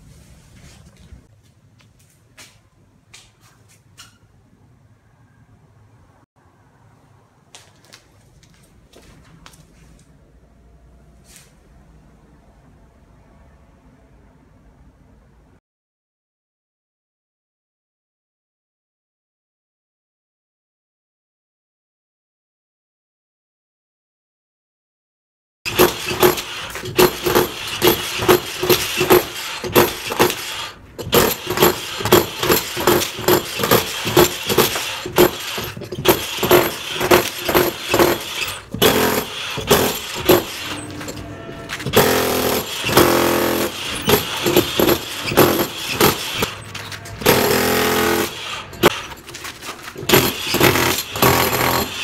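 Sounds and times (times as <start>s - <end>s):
rapid hammering: 25.7s - 49.3s, 49.9s - 52.0s
hammer chipping concrete: 25.7s - 52.0s.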